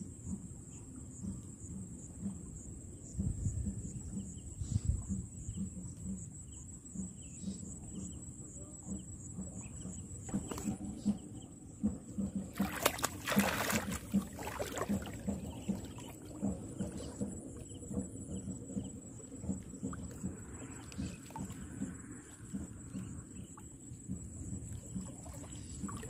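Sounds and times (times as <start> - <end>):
fish splashing in shallow water: 12.2 - 18.0, 19.3 - 23.8, 24.5 - 26.0.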